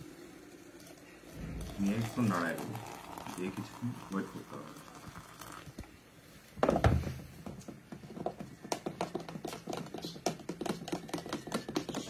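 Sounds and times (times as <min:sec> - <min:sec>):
spoon stirring in a cup: 0:08.1 - 0:12.0.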